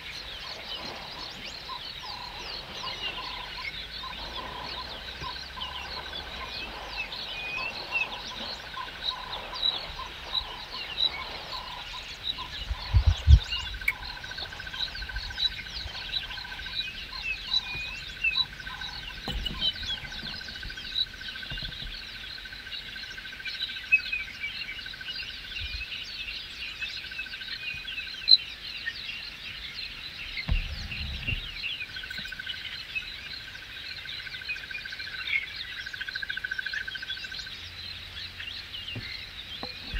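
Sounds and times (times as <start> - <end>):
birds and frogs chirping: 0.0 - 39.9
low thuds: 4.0 - 22.2, 30.4 - 32.3.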